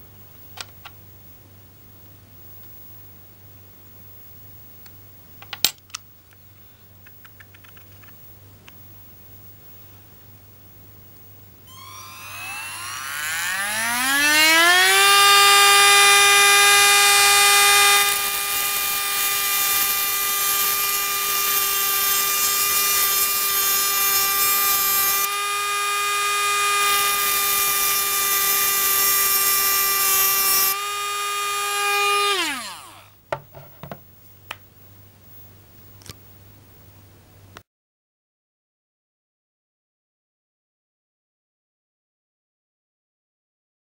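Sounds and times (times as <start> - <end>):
cut-off wheel grinding metal: 11.7 - 33.1
rotary tool whining: 11.7 - 33.2.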